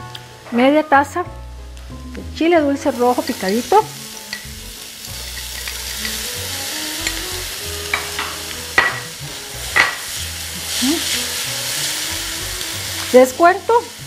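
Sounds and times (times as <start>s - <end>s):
vegetables sizzling in a frying pan: 1.8s - 14.0s
spatula knocking against pan: 8.0s - 9.1s.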